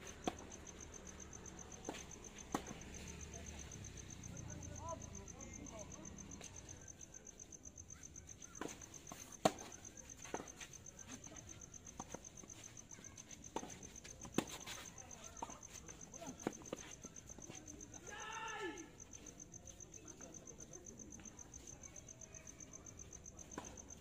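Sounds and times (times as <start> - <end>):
crickets chirping: 0.0 - 24.0
tennis balls struck by rackets: 1.8 - 3.0, 8.6 - 10.7.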